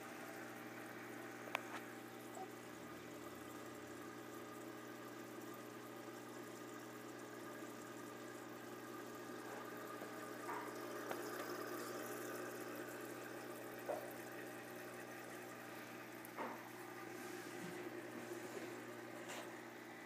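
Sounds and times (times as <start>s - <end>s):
water trickling: 0.0s - 19.8s.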